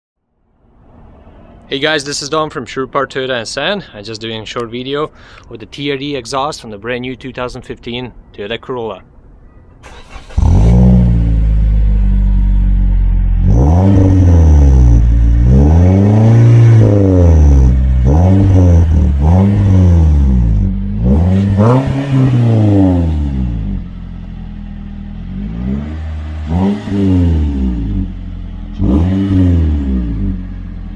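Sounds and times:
car engine idling and revving: 0:09.8 - 0:30.9.

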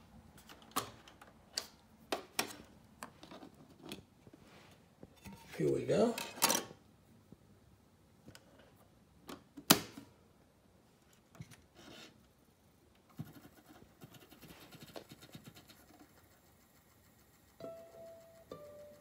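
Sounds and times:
music: 0:17.6 - 0:19.0.

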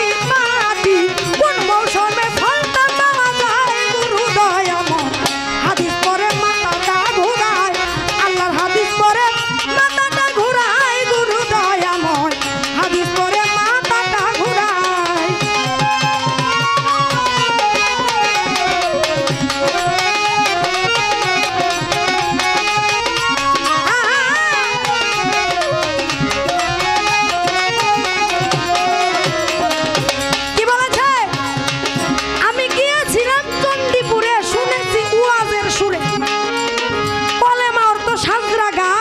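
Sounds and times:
hand drums playing fast beat: 0:00.0 - 0:39.0
wavering ornamented melody: 0:13.2 - 0:38.9.

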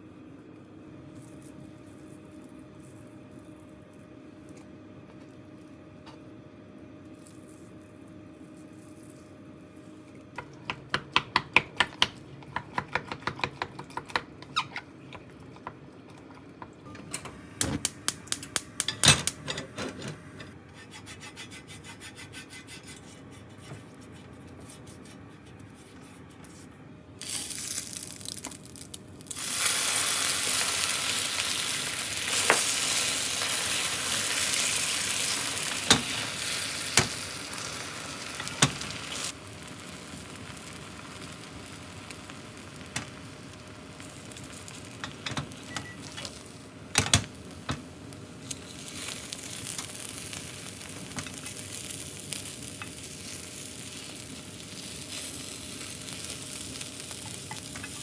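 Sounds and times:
egg sizzling in a pan: 0:27.2 - 0:58.0.

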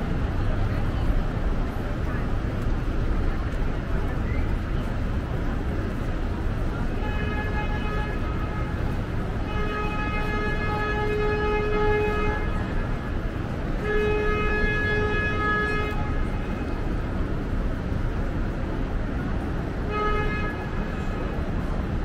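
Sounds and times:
low traffic rumble: 0:00.0 - 0:22.0
vehicle horn honking: 0:09.4 - 0:12.8, 0:13.8 - 0:16.2, 0:19.9 - 0:20.9.

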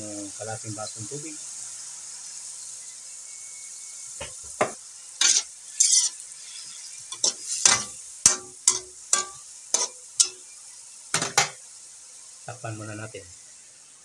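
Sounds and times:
high sizzle from pan: 0:00.0 - 0:14.0
metal spatula scraping a wok: 0:05.2 - 0:10.5.

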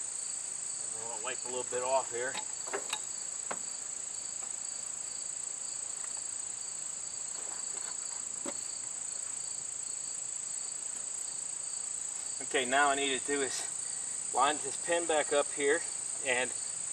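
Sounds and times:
insects chirring: 0:00.0 - 0:16.9.

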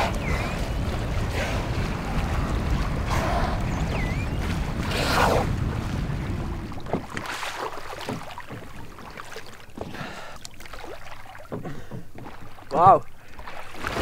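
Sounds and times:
low engine rumble: 0:00.0 - 0:07.1
water sloshing and splashing: 0:00.0 - 0:14.0.

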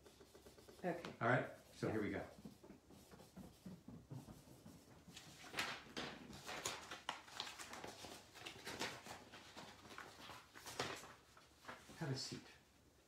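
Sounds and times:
handling rustles and knocks: 0:00.0 - 0:06.9.

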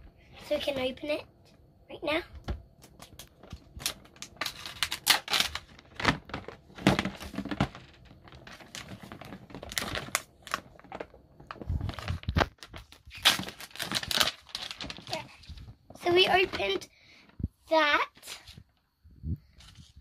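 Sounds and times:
paper tearing and crumpling: 0:03.1 - 0:10.8, 0:11.6 - 0:15.7.

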